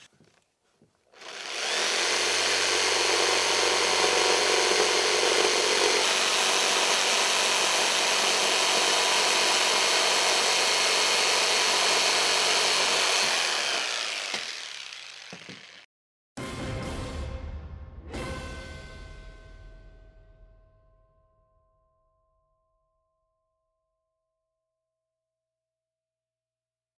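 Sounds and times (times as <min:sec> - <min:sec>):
jigsaw cutting plywood: 0:01.1 - 0:15.9.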